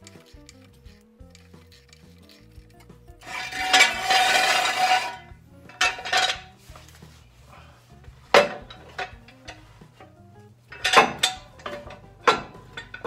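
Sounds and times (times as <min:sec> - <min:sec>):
metal scraping and clattering: 0:00.0 - 0:07.3, 0:08.0 - 0:13.0
sharp metal clank: 0:03.2 - 0:06.5, 0:08.3 - 0:09.6, 0:10.7 - 0:13.0.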